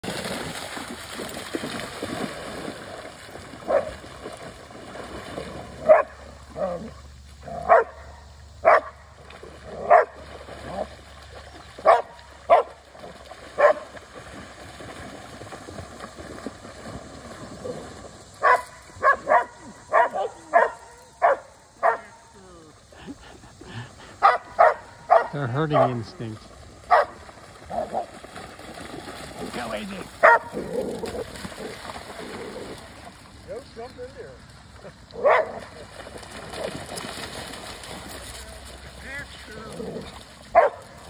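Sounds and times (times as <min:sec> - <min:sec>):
dogs splashing through water: 0:00.0 - 0:41.0
dog barking: 0:03.7 - 0:03.9, 0:05.8 - 0:06.8, 0:07.6 - 0:09.0, 0:09.8 - 0:10.2, 0:11.8 - 0:12.8, 0:13.6 - 0:13.8, 0:18.4 - 0:22.2, 0:24.2 - 0:26.0, 0:26.9 - 0:27.2, 0:30.2 - 0:30.5, 0:35.2 - 0:35.6, 0:40.5 - 0:40.8.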